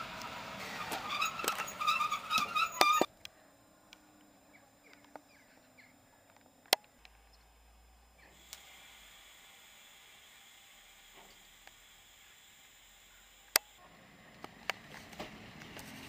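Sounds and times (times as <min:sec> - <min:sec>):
locomotive rolling past: 0:00.0 - 0:03.1
wheels clanking: 0:00.0 - 0:03.1
wheels squealing: 0:00.0 - 0:03.1
faint hiss: 0:07.0 - 0:13.8.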